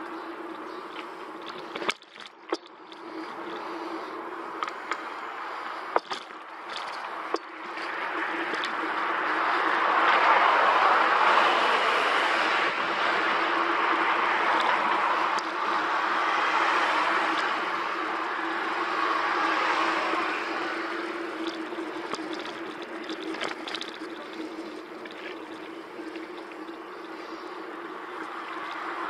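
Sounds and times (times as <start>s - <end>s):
bicycle tyre noise on tarmac: 0.0s - 29.0s
bike clicks and rattles: 0.0s - 29.0s
wind rushing over microphone: 6.5s - 22.0s.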